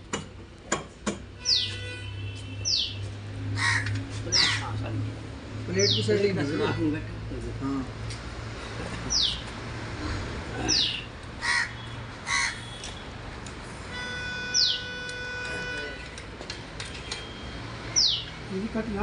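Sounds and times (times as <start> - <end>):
crow cawing: 3.6 - 4.7, 11.4 - 12.8.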